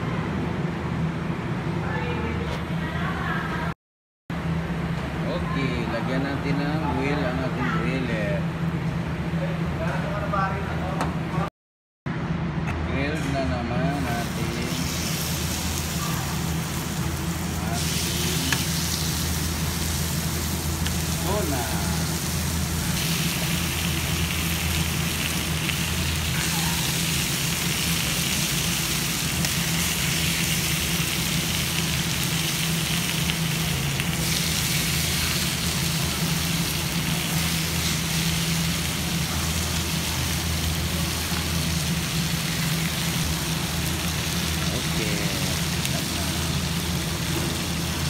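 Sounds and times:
fish sizzling on a grill: 0:14.2 - 0:48.0.

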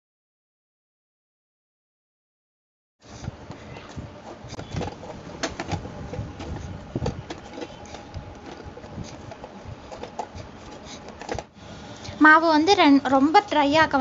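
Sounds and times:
hands kneading dough in bowl: 0:03.1 - 0:11.5.

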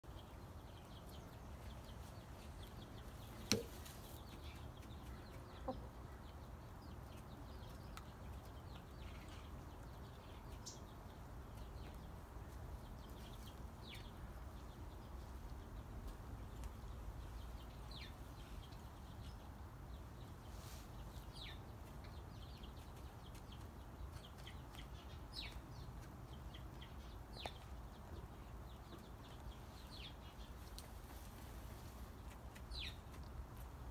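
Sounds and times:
sharp tap: 0:03.5 - 0:03.7
hens clucking: 0:04.8 - 0:06.0.

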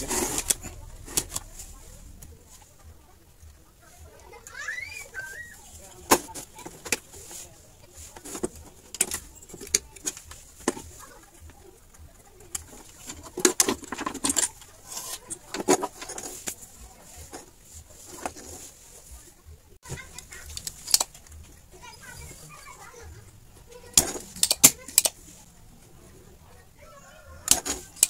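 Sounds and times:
circuit board clicks and rattles: 0:08.2 - 0:16.6, 0:20.1 - 0:21.6, 0:23.9 - 0:25.2, 0:27.5 - 0:28.0.

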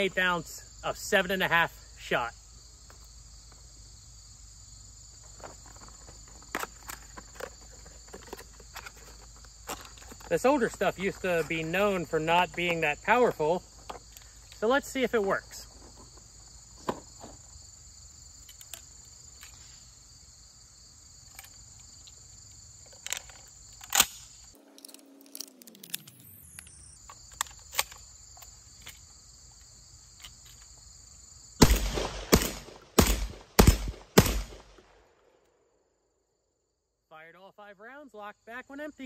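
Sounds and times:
crickets chirring: 0:00.0 - 0:34.9, 0:35.6 - 0:39.0
shotgun firing: 0:31.6 - 0:35.0.

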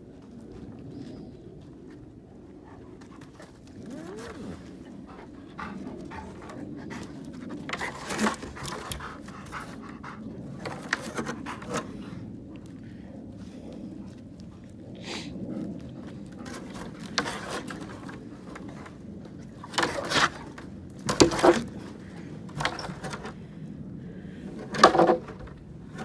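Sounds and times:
dog panting: 0:02.6 - 0:12.3.

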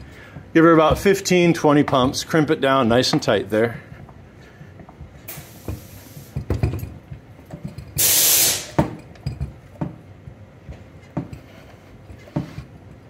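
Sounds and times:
hydraulic hiss: 0:05.3 - 0:06.4, 0:08.0 - 0:08.9.

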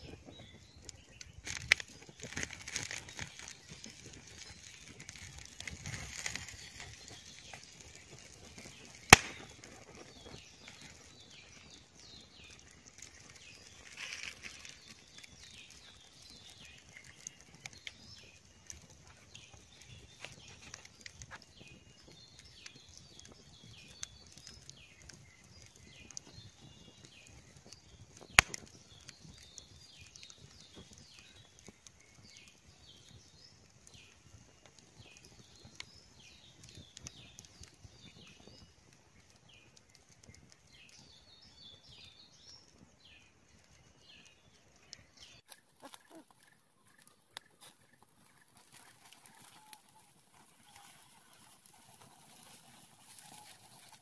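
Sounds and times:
sharp loud fire snaps: 0:00.0 - 0:54.0
wood fire crackling: 0:00.0 - 0:54.0.

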